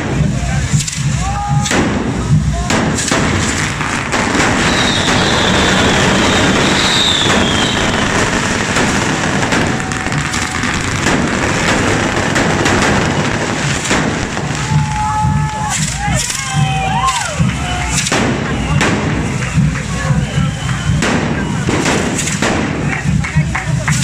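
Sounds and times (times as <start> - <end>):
fireworks hissing and crackling: 0.0 - 24.0.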